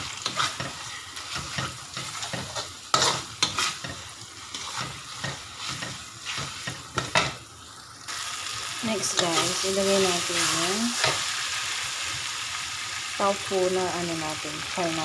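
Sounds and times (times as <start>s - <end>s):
spatula scraping wok: 0.0s - 7.4s, 8.2s - 12.2s
food sizzling in hot oil: 0.0s - 15.0s.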